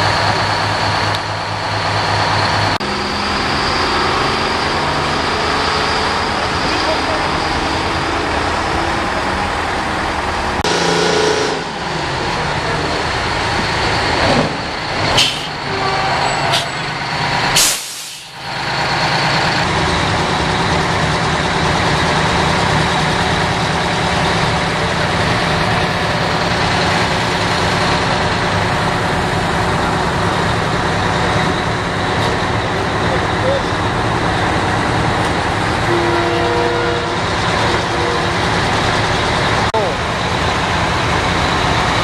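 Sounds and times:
diesel truck engines running: 0.0 - 42.0
air brake hisses: 17.6 - 18.4.

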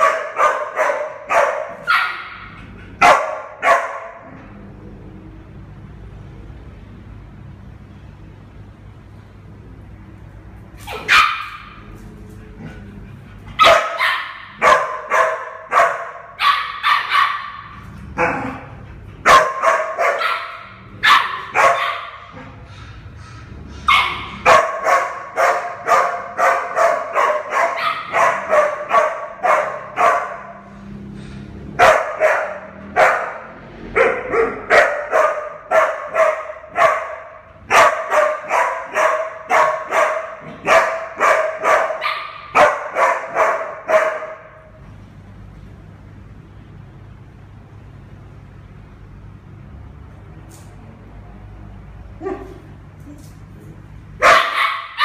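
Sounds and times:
puppy yapping high-pitched barks: 0.0 - 4.3, 10.8 - 11.9, 13.6 - 17.8, 19.3 - 22.4, 23.9 - 30.6, 31.8 - 33.4, 34.0 - 44.6, 54.2 - 55.0.

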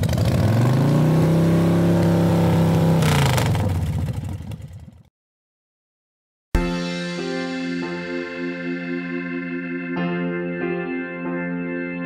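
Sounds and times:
steady engine note: 6.6 - 12.0.

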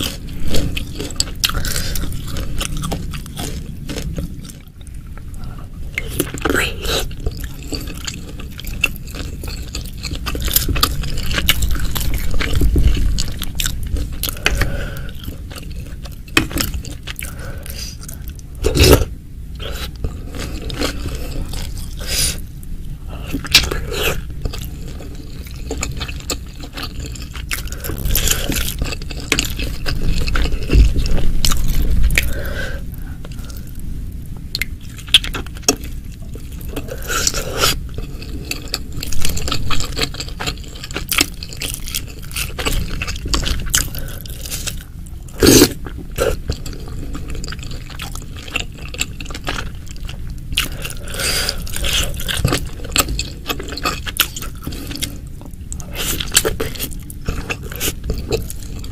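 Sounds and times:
person chewing food: 0.0 - 58.9.

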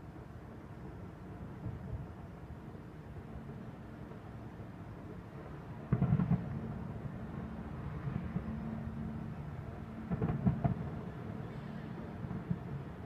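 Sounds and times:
distant fireworks booming: 5.9 - 6.7.

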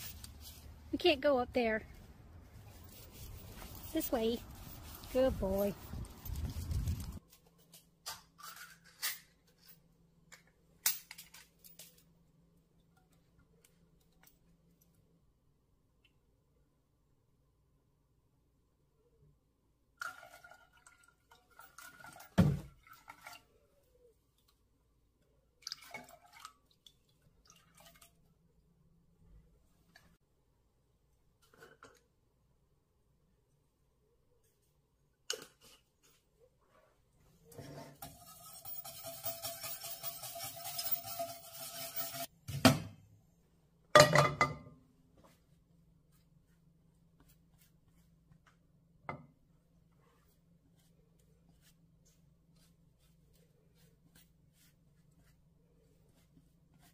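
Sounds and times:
milk pouring into saucepan: 20.0 - 23.5, 25.6 - 28.2
whisk scraping a saucepan: 37.6 - 42.3.

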